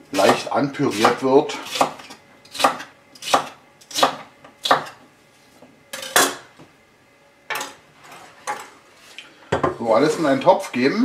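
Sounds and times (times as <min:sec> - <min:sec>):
knife chopping on wooden board: 0:00.2 - 0:05.0.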